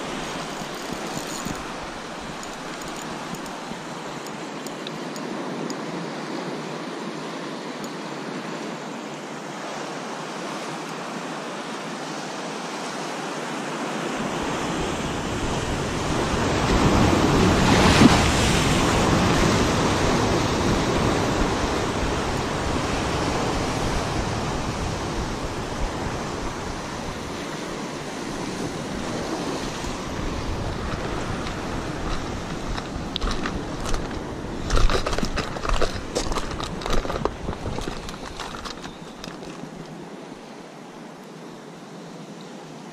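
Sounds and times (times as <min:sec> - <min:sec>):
wind buffeting microphone: 0:15.1 - 0:39.9.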